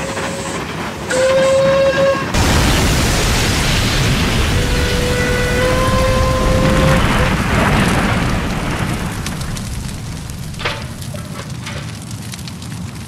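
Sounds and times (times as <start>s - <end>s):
train whistle: 0.0s - 2.4s, 4.4s - 7.5s
loud crash: 2.3s - 11.8s
sharp crack: 2.4s - 12.8s
crackling: 2.4s - 13.0s.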